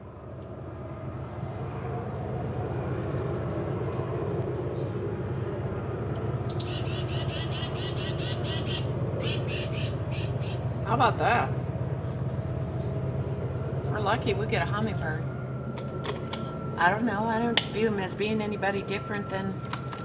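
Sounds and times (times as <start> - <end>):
low outdoor rumble: 0.0 - 20.0
bird chirping rapidly: 6.4 - 10.7.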